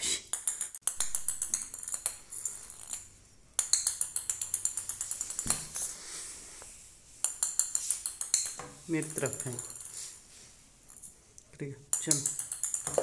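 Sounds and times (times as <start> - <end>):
toy ball rattling on tiled floor: 0.3 - 5.9, 7.2 - 10.2, 11.9 - 13.0.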